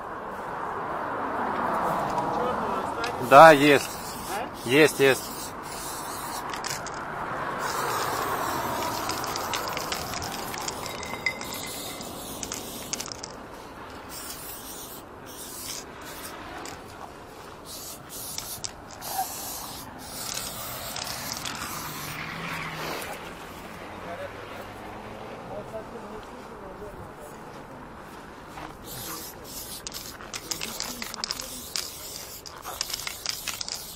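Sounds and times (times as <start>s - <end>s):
spray-paint can hissing: 3.2s - 7.0s, 7.6s - 13.4s, 14.1s - 16.9s, 17.6s - 23.0s, 28.8s - 33.9s.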